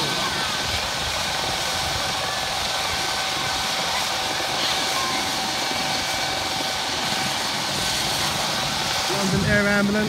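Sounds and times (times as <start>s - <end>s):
helicopter turbine engines whining: 0.0s - 10.0s.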